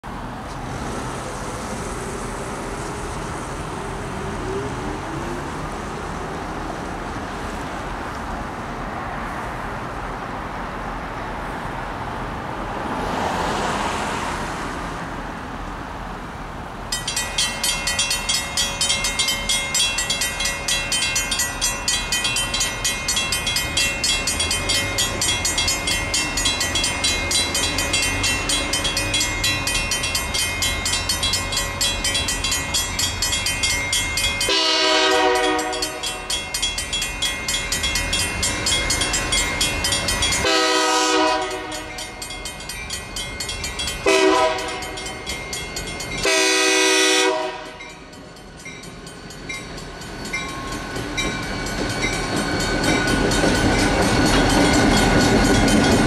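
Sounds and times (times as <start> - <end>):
cars passing: 0.0 - 56.0
crossing bells ringing: 16.9 - 56.0.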